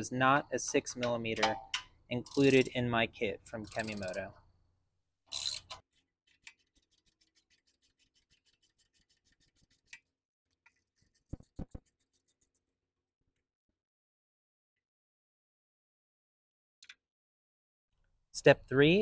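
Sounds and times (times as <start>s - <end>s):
socket ratchet clicking: 1.4s - 2.7s, 3.6s - 4.3s, 5.3s - 5.8s.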